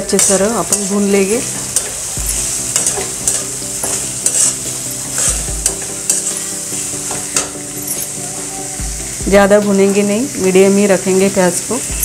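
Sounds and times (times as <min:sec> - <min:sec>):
metal spatula scraping pan: 0:00.0 - 0:08.1
onions sizzling in hot oil: 0:00.0 - 0:12.0.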